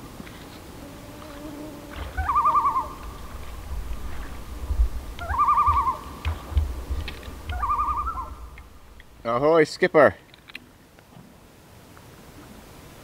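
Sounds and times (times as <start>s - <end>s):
loon tremolo calls: 0.9s - 9.5s
low rumble: 2.1s - 9.4s.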